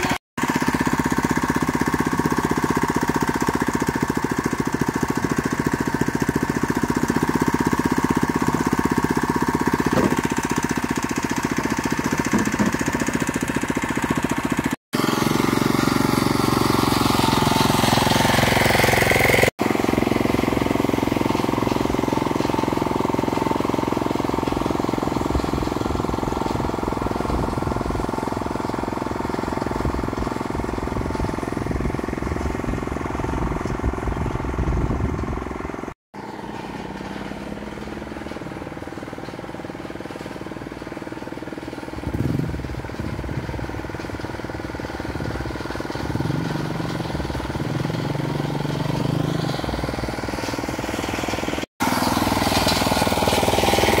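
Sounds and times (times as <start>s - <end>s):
small engine running: 0.0s - 54.0s.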